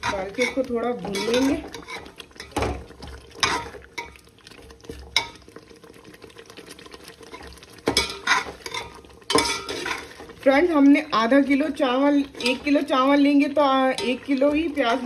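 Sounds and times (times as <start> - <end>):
metal spoon scraping a metal pot: 0.0 - 2.7, 3.4 - 4.2, 7.3 - 10.3, 12.2 - 12.9, 13.8 - 15.0.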